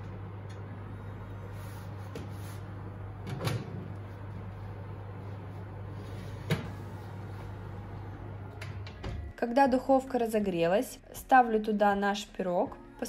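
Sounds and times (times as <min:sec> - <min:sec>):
low hum: 0:00.0 - 0:11.9.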